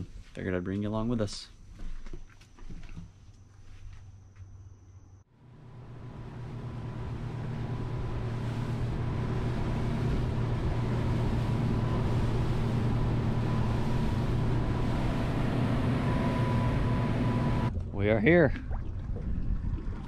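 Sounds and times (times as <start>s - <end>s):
outboard motor droning: 5.3s - 18.4s
water rushing along hull: 5.4s - 20.0s.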